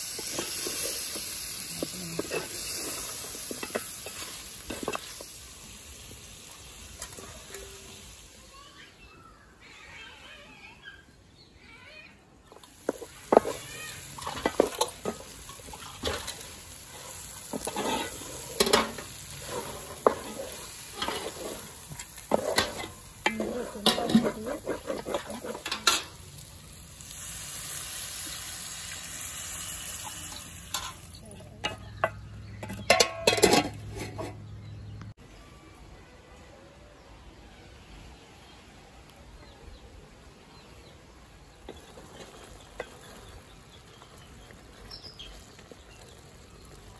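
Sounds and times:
knocks and scrapes in metal pot: 0.0s - 5.3s, 12.5s - 16.5s, 17.1s - 26.2s, 30.3s - 34.6s
sizzling: 0.0s - 10.7s, 12.4s - 35.2s, 39.9s - 46.9s.

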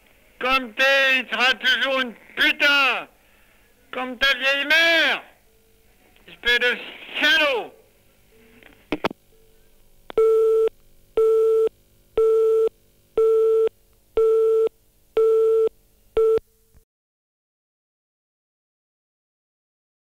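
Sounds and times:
telephone busy tone beeping: 10.2s - 16.4s.

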